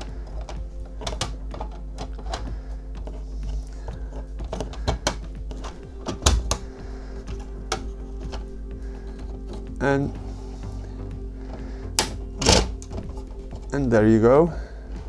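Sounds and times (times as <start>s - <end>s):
hard plastic clicks and knocks: 0.0s - 9.7s.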